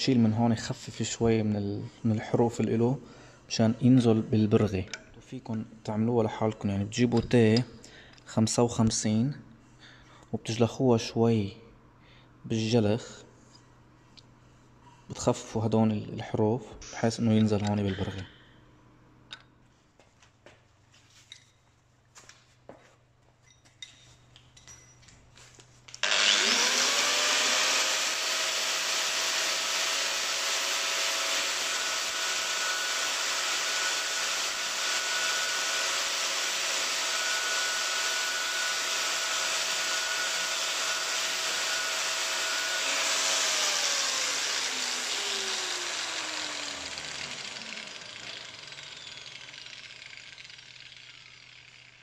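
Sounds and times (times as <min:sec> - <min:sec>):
angle grinder whine: 0:17.3 - 0:18.5, 0:26.0 - 0:52.0
footsteps on concrete: 0:19.9 - 0:23.8.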